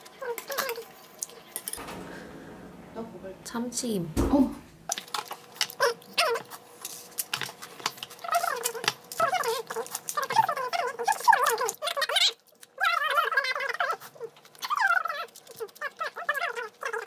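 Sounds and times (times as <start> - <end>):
wet chewing and mouth clicks: 5.0 - 17.0.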